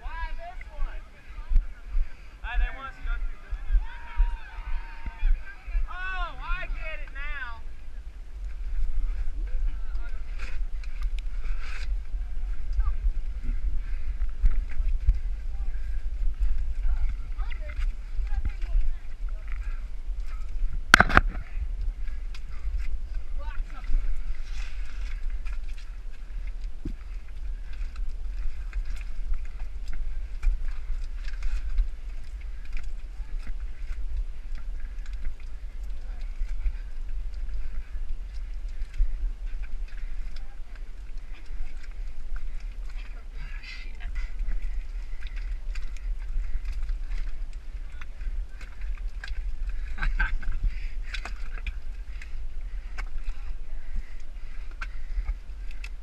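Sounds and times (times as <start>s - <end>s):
microphone rumbling and rubbing: 6.8s - 56.0s
camera scraping against mud: 20.9s - 21.4s.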